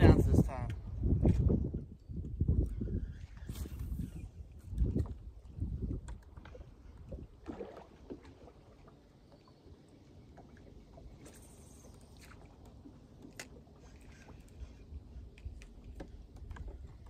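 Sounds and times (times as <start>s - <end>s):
water lapping against boat hull: 0.0s - 17.0s.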